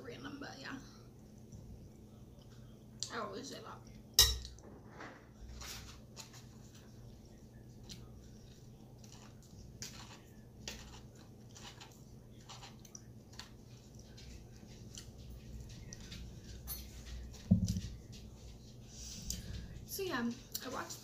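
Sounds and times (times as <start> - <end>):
low steady hum: 0.0 - 21.0
chewing salad: 5.7 - 21.0.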